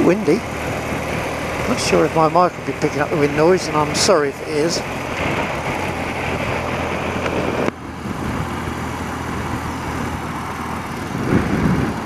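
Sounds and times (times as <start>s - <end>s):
motorcycle engine running: 0.0s - 12.0s
wind over helmet microphone: 5.1s - 12.0s.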